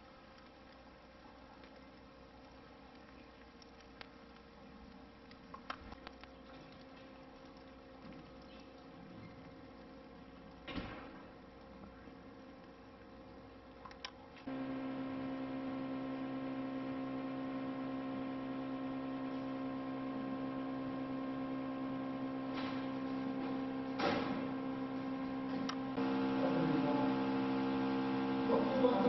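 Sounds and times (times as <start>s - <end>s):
electrical hum: 0.0s - 29.0s
click: 13.8s - 14.2s.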